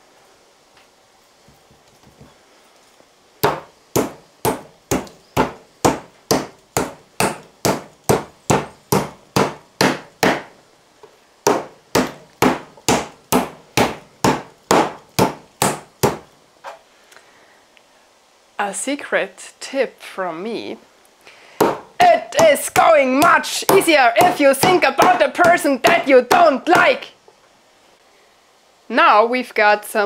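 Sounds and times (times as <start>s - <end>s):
meat mallet pounding meat: 3.4s - 10.5s, 11.5s - 16.3s, 21.6s - 26.9s.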